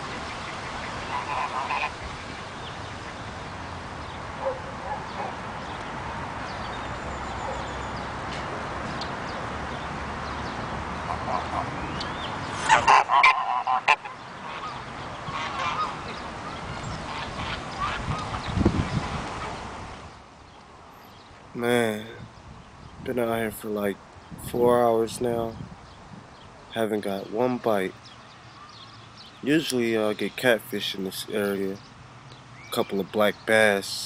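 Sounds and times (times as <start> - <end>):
geese honking: 0.0 - 3.3, 11.0 - 12.0, 12.6 - 18.5
steady background hiss: 19.0 - 34.0.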